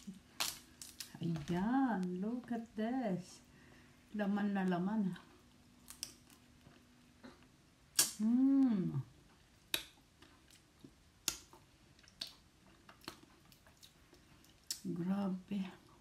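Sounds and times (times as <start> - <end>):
person humming mmm: 8.0 - 9.2
wet eating clicks and smacks: 9.4 - 14.9.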